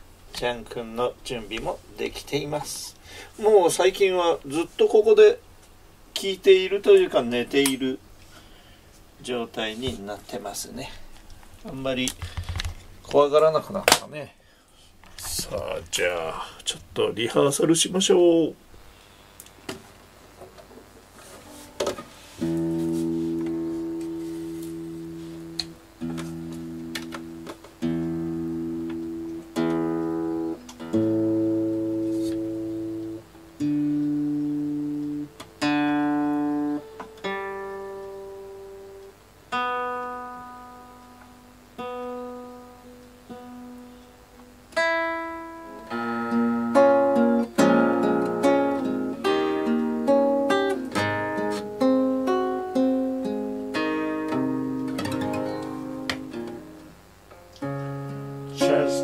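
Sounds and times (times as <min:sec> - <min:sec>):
acoustic guitar playing: 0:18.7 - 0:59.0.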